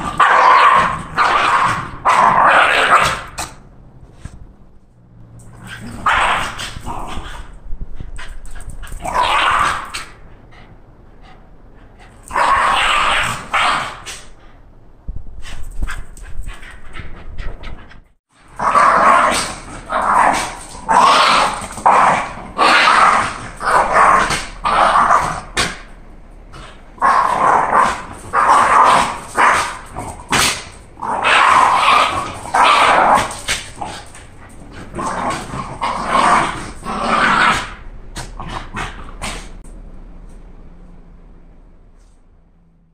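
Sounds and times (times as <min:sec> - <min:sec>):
dogs barking and growling: 0:00.0 - 0:03.6, 0:05.4 - 0:07.6, 0:08.5 - 0:14.4, 0:18.4 - 0:39.6.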